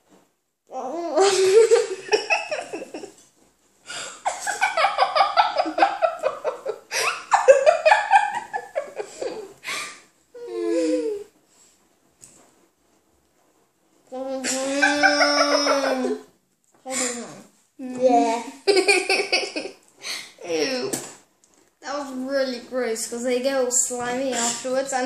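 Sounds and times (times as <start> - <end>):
children laughing: 1.2 - 3.2, 4.2 - 9.8, 14.4 - 16.3, 18.6 - 19.8.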